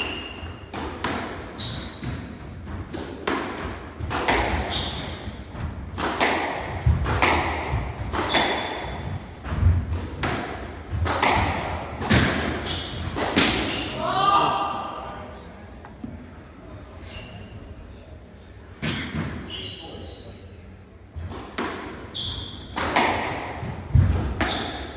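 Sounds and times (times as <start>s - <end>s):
squash ball smacking walls: 5.6s - 13.7s, 22.7s - 24.9s.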